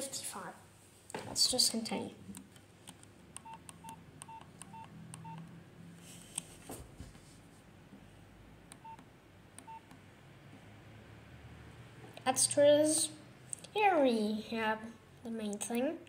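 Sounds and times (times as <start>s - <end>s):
key clicks: 2.9s - 5.5s
phone keypad beeps: 3.4s - 5.5s, 8.8s - 9.0s, 9.6s - 10.0s.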